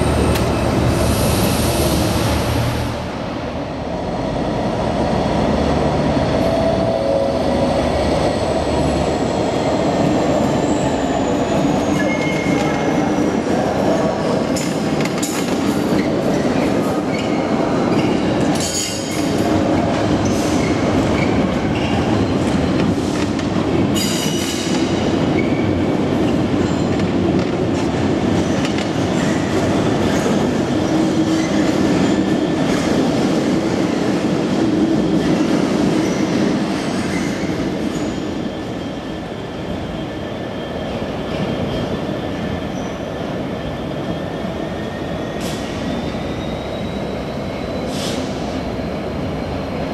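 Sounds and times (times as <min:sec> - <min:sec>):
diesel locomotive passing: 0:00.0 - 0:15.0.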